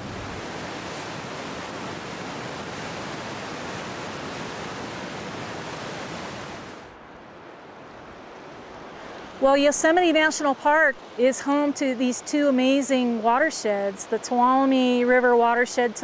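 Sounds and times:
river rapids rushing: 0:00.0 - 0:07.0.

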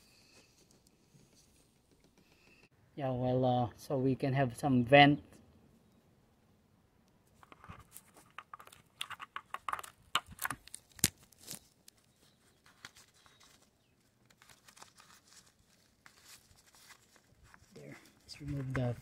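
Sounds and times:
filler cap clicks and scrapes: 0:07.4 - 0:12.0.

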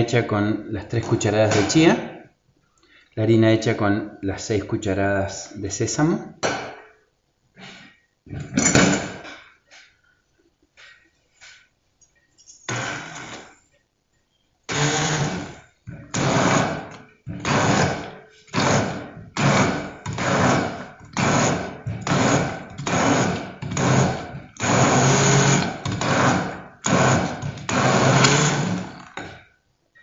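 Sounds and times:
immersion blender churning: 0:14.7 - 0:28.9.

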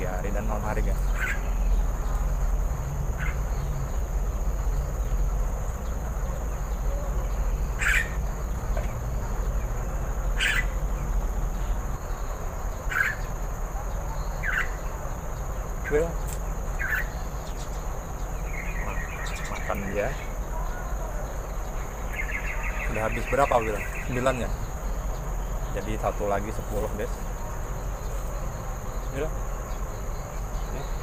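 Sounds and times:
high-pitched insect drone: 0:00.0 - 0:31.0.

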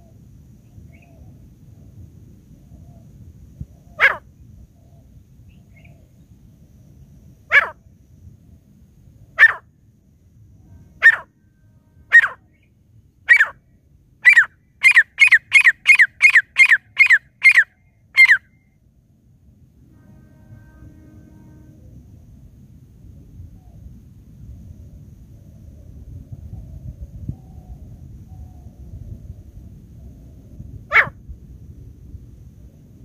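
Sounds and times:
francolin calling: 0:03.8 - 0:04.2, 0:07.5 - 0:07.8, 0:09.4 - 0:09.6, 0:10.9 - 0:11.4, 0:12.0 - 0:13.6, 0:14.2 - 0:18.7, 0:30.9 - 0:31.2.

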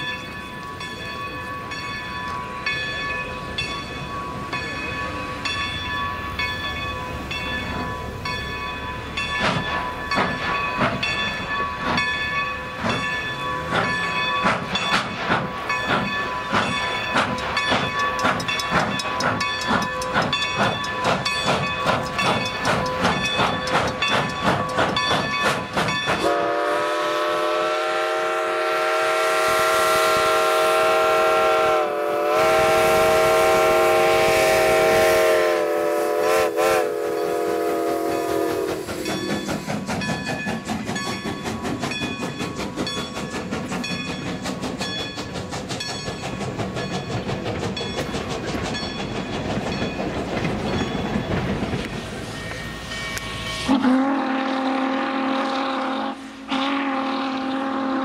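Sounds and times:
steam locomotive exhaust chuffing: 0:00.0 - 0:58.0
steam chime whistle blast: 0:26.1 - 0:39.5, 0:52.0 - 0:58.0.

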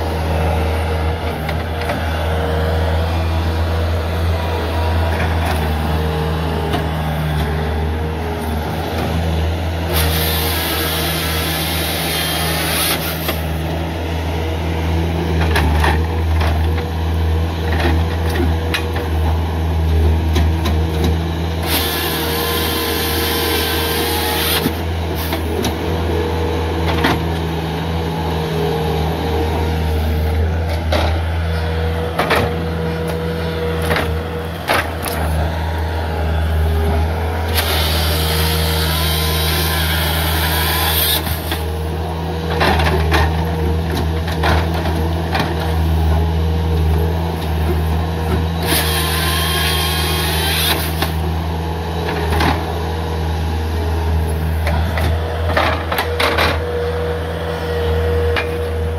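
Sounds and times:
diesel engine running: 0:00.0 - 0:58.9
saw chain cutting through log: 0:09.8 - 0:13.6, 0:21.5 - 0:25.6, 0:36.8 - 0:41.8, 0:48.6 - 0:51.2.

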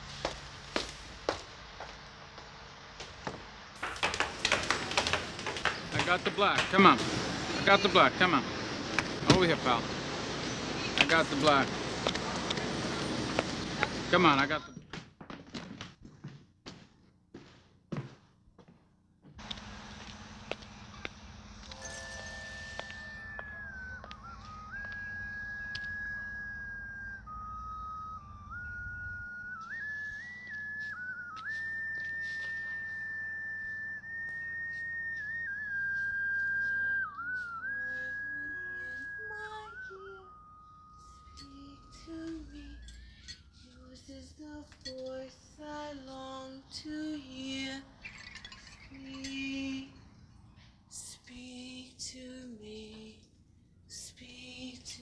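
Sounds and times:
chiming notes: 0:21.7 - 0:24.7, 0:41.0 - 0:43.6
slow whistled melody: 0:21.7 - 0:44.2
woman singing slow melody: 0:36.3 - 0:48.0, 0:48.9 - 0:50.0, 0:50.9 - 0:55.0.

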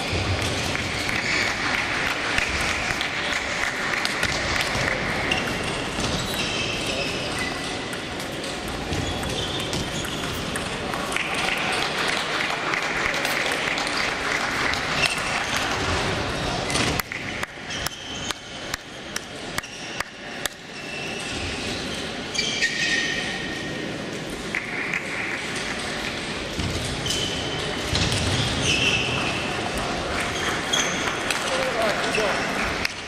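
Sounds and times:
table tennis balls clicking: 0:00.2 - 0:16.0.

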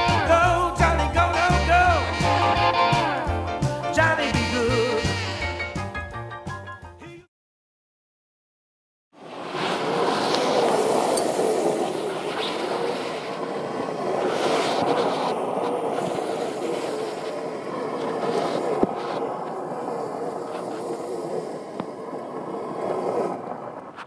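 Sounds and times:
tyres rushing on gravel: 0:09.2 - 0:24.0.

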